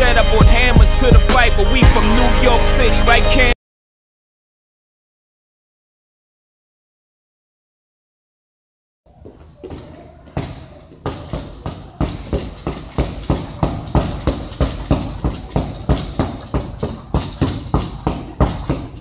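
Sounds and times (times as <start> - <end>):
punches slapping a punching bag: 9.6 - 19.0.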